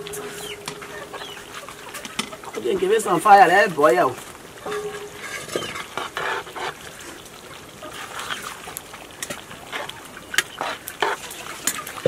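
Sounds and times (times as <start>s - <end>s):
metal spoon stirring a pot: 4.6s - 6.9s.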